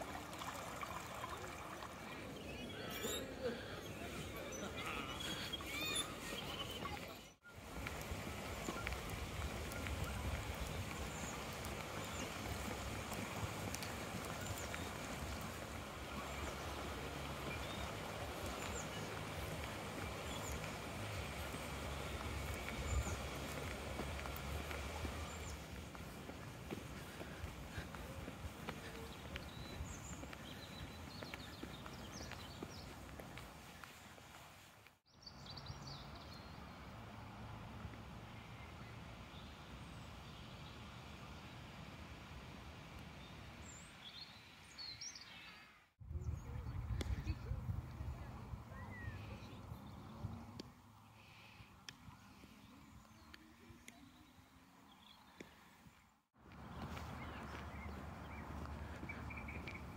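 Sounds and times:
faint outdoor background noise: 0.0s - 59.9s
wind rumbling on microphone: 7.6s - 32.9s, 46.0s - 50.7s.

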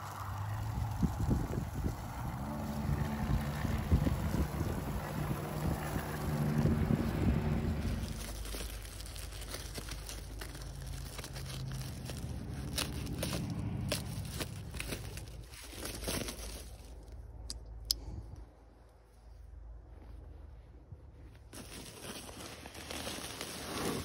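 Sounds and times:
wind rumble on microphone: 0.0s - 9.0s
plastic crinkling and tearing: 0.0s - 17.2s, 21.5s - 24.0s
knife cutting plastic bag: 7.6s - 16.8s.

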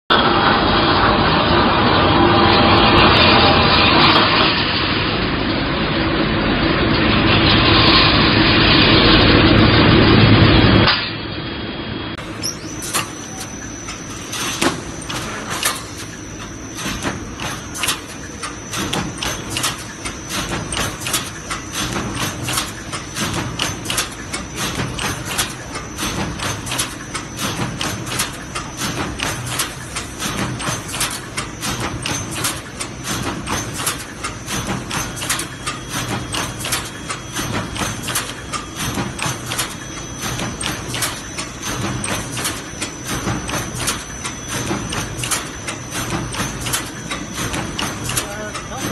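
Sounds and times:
welding machine clacking: 12.2s - 48.9s.

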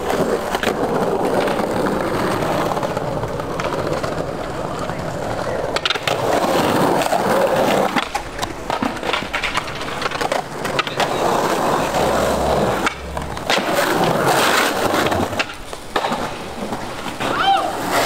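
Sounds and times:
skateboard clacks: 0.0s - 18.0s
skateboard wheels rolling on pavers: 0.0s - 18.0s.

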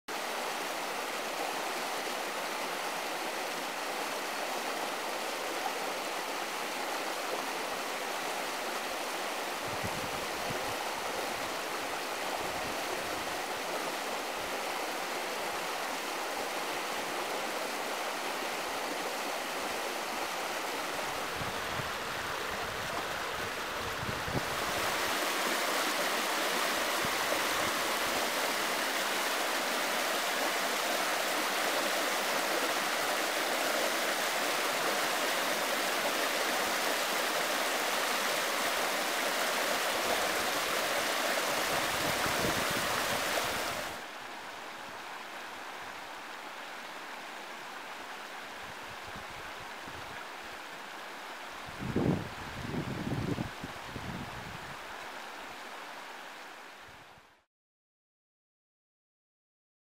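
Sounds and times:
stream rushing over rocks: 0.1s - 57.5s.

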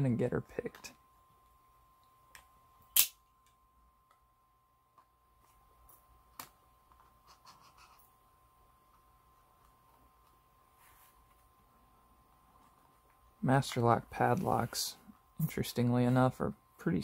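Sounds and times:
sharp click: 2.9s - 3.2s.

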